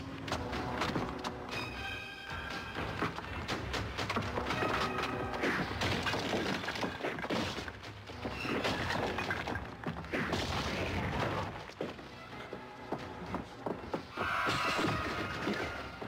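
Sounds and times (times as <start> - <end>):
dramatic film score: 0.0 - 16.0
punches and crashing impacts: 3.4 - 11.7.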